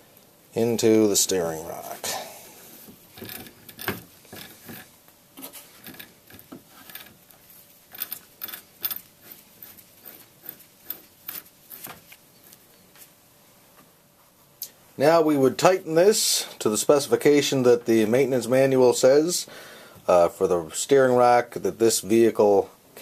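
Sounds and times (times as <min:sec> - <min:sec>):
metallic clicks and rubbing: 0:03.1 - 0:12.6.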